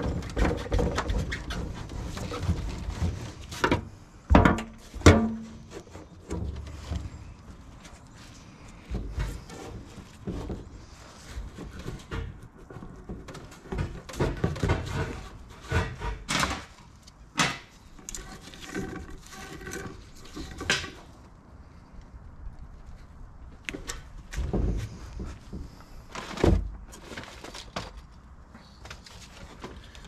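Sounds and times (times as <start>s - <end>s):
sheet-metal tanks clanking: 0.0s - 7.4s.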